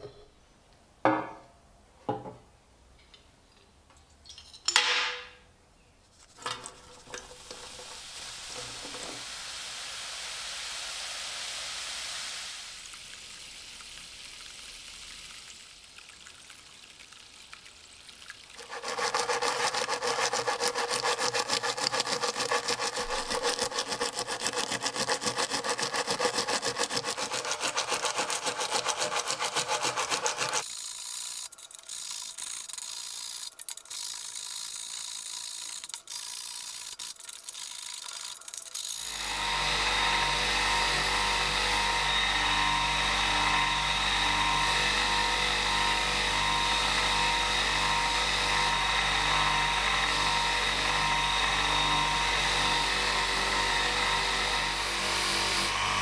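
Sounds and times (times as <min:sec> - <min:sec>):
brush scrubbing metal: 0:06.1 - 0:09.2, 0:18.6 - 0:37.2
electric motor humming: 0:39.0 - 0:56.0.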